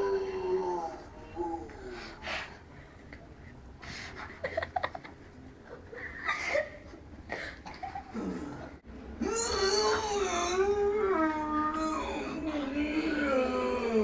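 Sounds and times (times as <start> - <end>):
boys giggling and laughing: 4.2 - 8.4.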